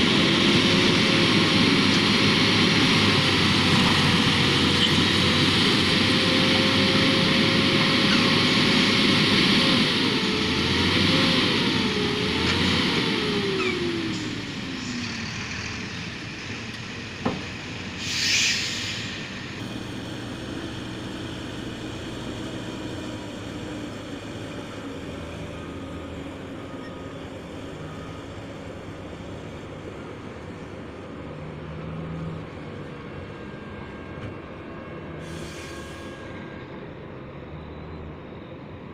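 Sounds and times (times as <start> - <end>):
diesel machinery drone: 0.0 - 38.9
brief hiss: 18.0 - 19.3.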